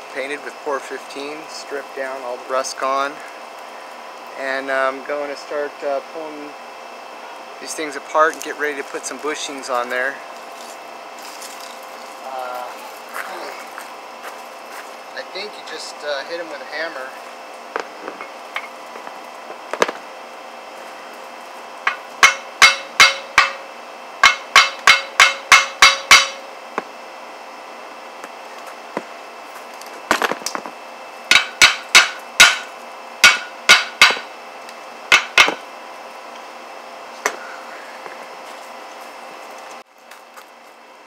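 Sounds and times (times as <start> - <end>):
hammer striking steel: 21.9 - 23.6, 24.2 - 26.5, 31.3 - 34.3, 35.1 - 35.6.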